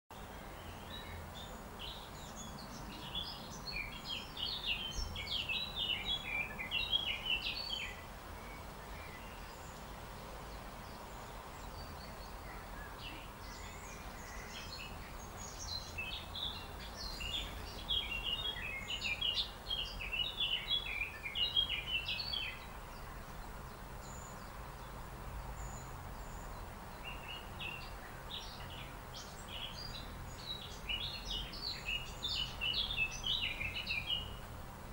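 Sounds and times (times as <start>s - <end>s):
songbird twittering: 0.2s - 34.5s.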